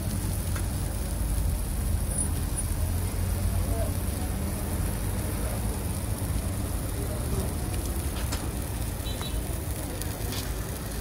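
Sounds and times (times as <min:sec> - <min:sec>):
low rumble of traffic: 0:00.0 - 0:11.0
faint voices: 0:02.7 - 0:11.0.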